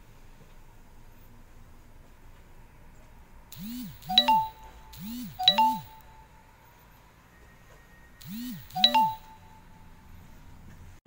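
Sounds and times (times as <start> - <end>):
electronic chime: 3.6 - 6.5, 8.2 - 10.0.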